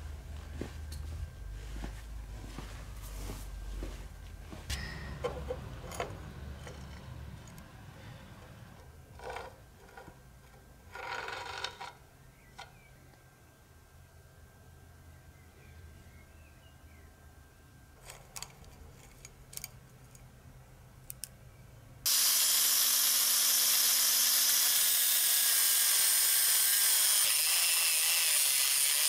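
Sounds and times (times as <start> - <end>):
low rumble: 0.0 - 9.1.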